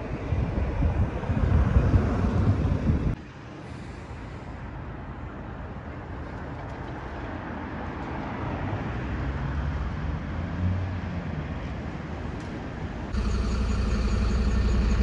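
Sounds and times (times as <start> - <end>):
road noise: 0.0 - 15.0
vehicle engine passing close: 13.2 - 15.0.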